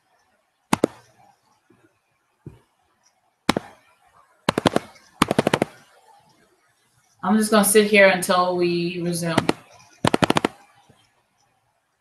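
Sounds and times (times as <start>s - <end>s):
sharp clicks: 0.7s - 1.1s, 4.5s - 5.9s, 9.4s - 10.7s.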